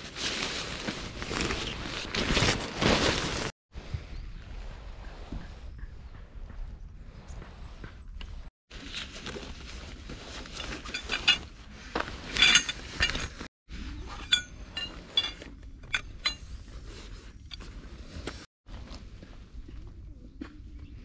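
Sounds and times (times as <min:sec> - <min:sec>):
stuff sack rustling: 0:00.0 - 0:03.5, 0:08.7 - 0:13.5
metal tent poles clinking: 0:10.0 - 0:17.9.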